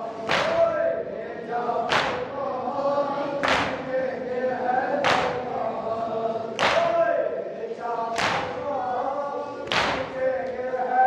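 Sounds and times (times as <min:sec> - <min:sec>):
men chanting in unison: 0:00.0 - 0:11.0.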